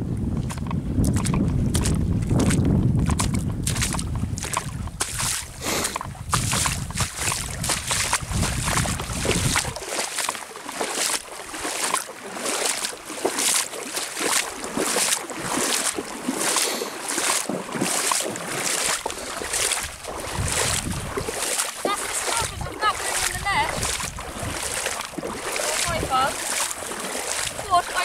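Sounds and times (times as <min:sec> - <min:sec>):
wind rumble on microphone: 0:00.0 - 0:10.0, 0:17.5 - 0:28.0
footsteps wading through water: 0:00.0 - 0:28.0.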